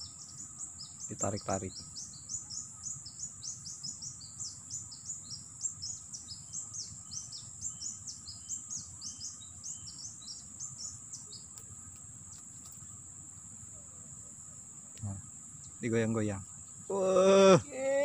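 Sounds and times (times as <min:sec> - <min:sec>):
small bird chirping rapidly: 0:00.0 - 0:13.1
insects droning: 0:00.0 - 0:18.0.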